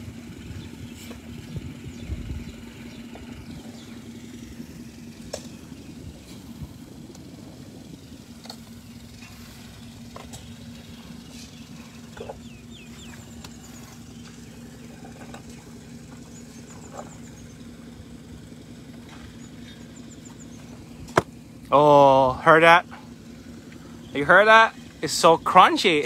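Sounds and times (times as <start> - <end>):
elephants chewing: 0.0 - 21.7
vehicle engine idling: 0.0 - 26.0
bird chirps: 0.4 - 6.6, 8.7 - 17.8, 19.0 - 21.1.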